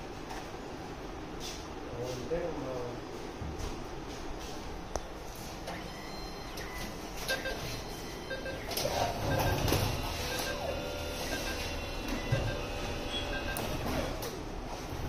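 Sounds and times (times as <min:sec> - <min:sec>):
low machine hum: 0:00.0 - 0:15.0.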